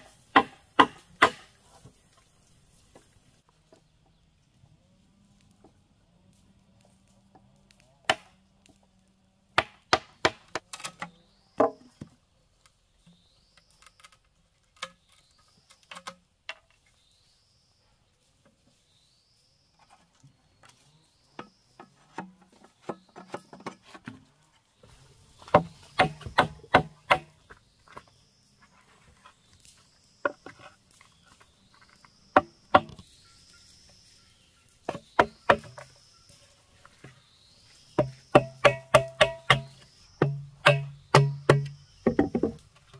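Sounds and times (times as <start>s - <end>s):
blade chopping bamboo: 0.0s - 1.6s, 8.0s - 8.4s, 9.6s - 11.0s, 25.5s - 27.4s, 32.4s - 33.0s, 34.9s - 35.9s, 38.0s - 42.6s
faint high chirp: 27.4s - 38.4s.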